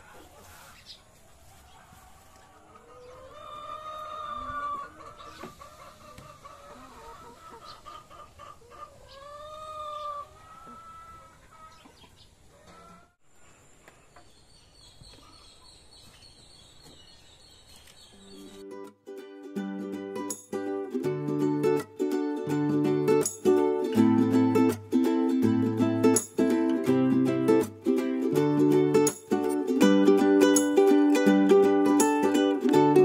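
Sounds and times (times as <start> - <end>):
hens clucking: 0.0 - 13.2.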